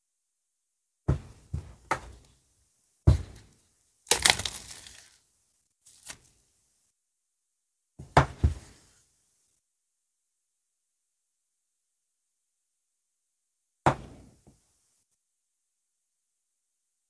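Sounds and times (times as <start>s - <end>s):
plastic shrink wrap crackling: 4.1s - 5.2s, 5.8s - 6.4s.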